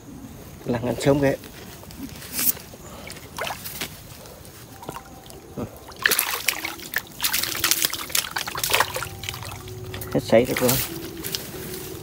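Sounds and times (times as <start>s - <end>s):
water trickling: 2.9s - 12.0s
fish splashing at water surface: 5.8s - 9.7s.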